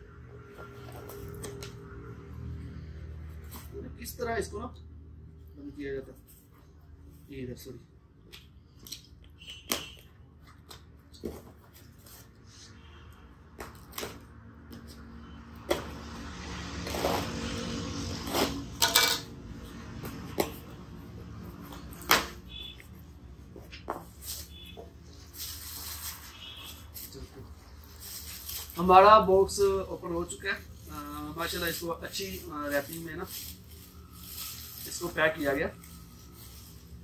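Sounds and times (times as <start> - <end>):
plastic wrapping rustling: 24.1 - 37.0.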